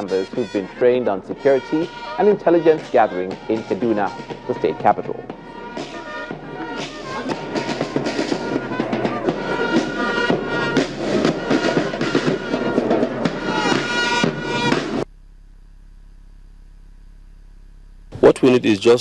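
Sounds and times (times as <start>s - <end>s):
drum strikes: 0.0s - 15.0s
marching band music: 0.0s - 15.0s.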